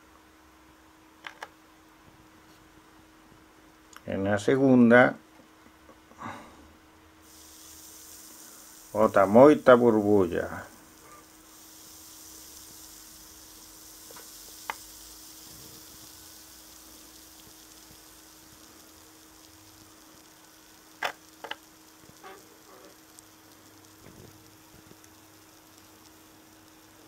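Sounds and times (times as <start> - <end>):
acid fizzing on rock: 7.2 - 27.0
small clicks: 21.0 - 26.8.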